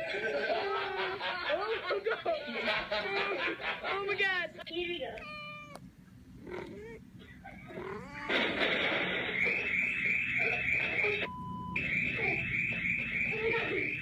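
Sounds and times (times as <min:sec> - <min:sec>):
electronic alarm warbling: 0:09.2 - 0:14.0
short steady beep: 0:09.6 - 0:14.0.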